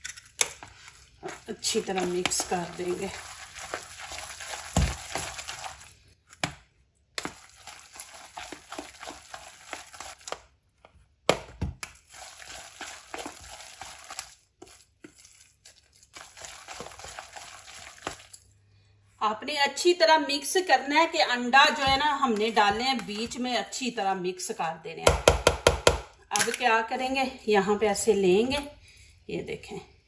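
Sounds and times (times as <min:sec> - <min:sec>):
wet squelches: 0:00.2 - 0:10.9, 0:11.8 - 0:18.9.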